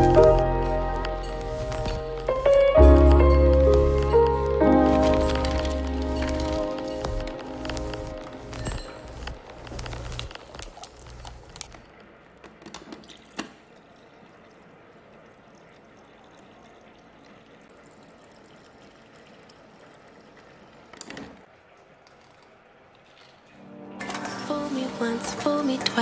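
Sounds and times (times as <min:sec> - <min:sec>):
glass and ice clinking: 0:08.5 - 0:09.4
water pouring into glass: 0:13.0 - 0:20.9.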